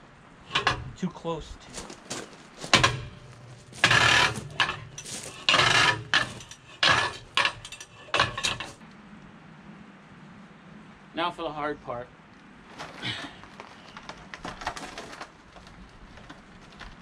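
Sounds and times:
metal tools clanking and scraping: 0.5 - 1.0, 2.6 - 8.8.

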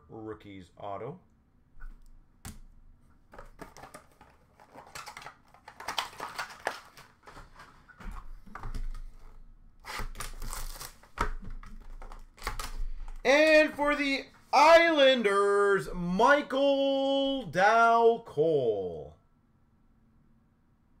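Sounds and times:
plastic wrappers crinkling: 3.3 - 13.3.

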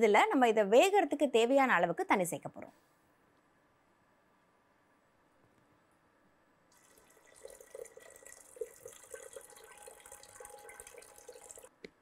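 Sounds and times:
water pouring and splashing: 6.7 - 11.7.

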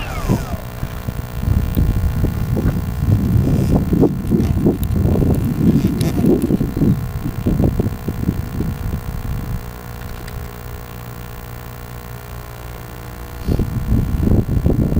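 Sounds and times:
wind buffeting microphone: 0.0 - 10.6, 13.5 - 14.9
steady low hum: 0.0 - 14.9.

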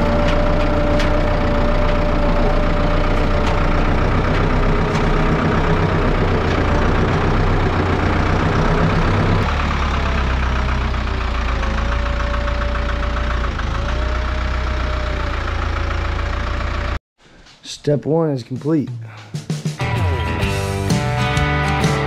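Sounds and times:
tractor engine running: 0.0 - 17.0.

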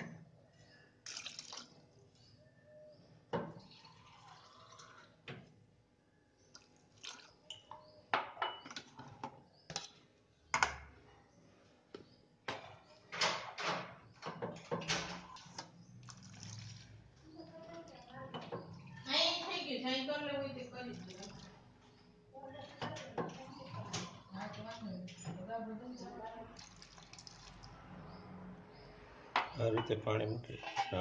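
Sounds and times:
water dripping and splashing: 1.0 - 1.8, 6.5 - 7.5, 15.3 - 17.2, 20.9 - 21.6, 26.5 - 28.1
water pouring into pot: 1.0 - 1.8, 3.6 - 5.2, 6.5 - 7.4, 15.3 - 17.1, 20.9 - 21.6, 26.6 - 27.8.

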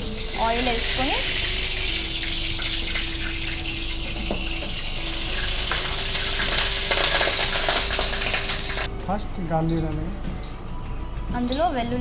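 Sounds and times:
gas burner flame hissing: 0.0 - 8.9
oil crackling and sizzling: 0.0 - 11.6.

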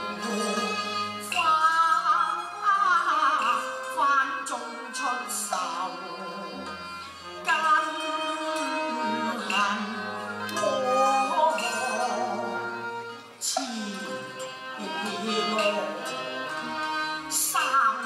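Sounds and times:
instrumental ensemble: 0.0 - 18.0
woman singing with vibrato: 0.0 - 18.0.

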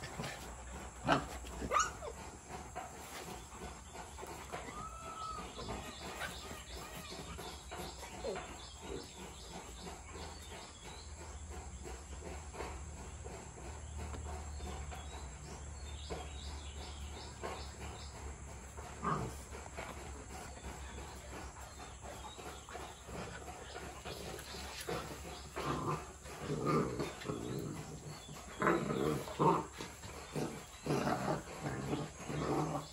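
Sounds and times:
dog vocalisation: 0.0 - 11.0
dogs scuffling on concrete: 12.1 - 32.9.

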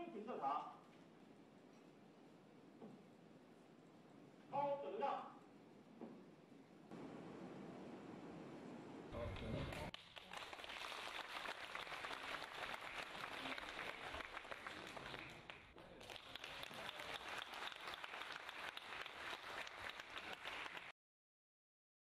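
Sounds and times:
crowd applauding: 9.1 - 21.0.

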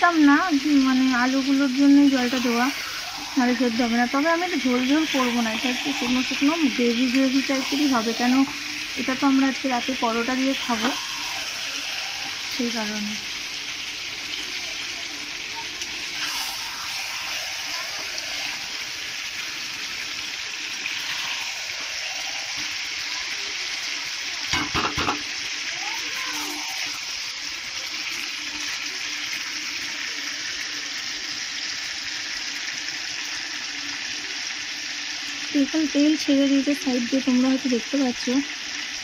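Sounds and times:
curry sizzling in oil: 0.0 - 39.0
metal spatula scraping a pan: 2.0 - 12.6, 16.2 - 18.9.

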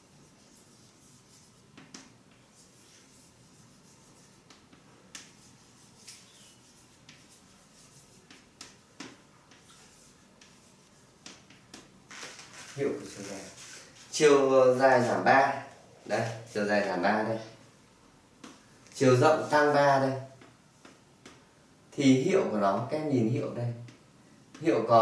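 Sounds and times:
faint hiss: 0.0 - 25.0.

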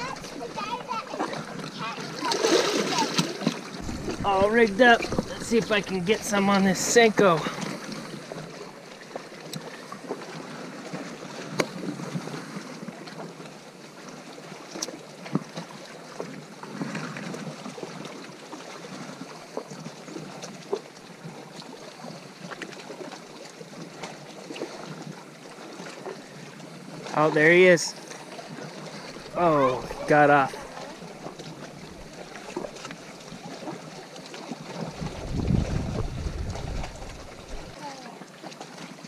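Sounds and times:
waves lapping on rocky shore: 0.0 - 39.0
wind on microphone: 3.8 - 6.3, 34.8 - 37.8.

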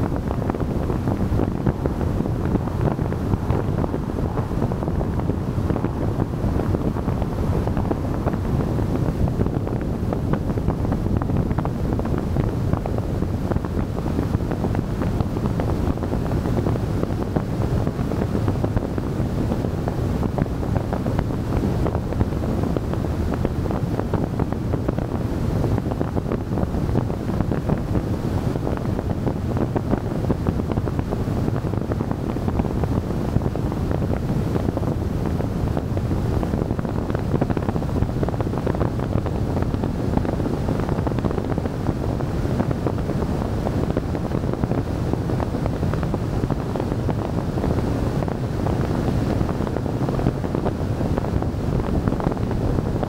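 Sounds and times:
wind buffeting microphone: 0.0 - 53.0
car rumbling along road: 0.2 - 16.8.

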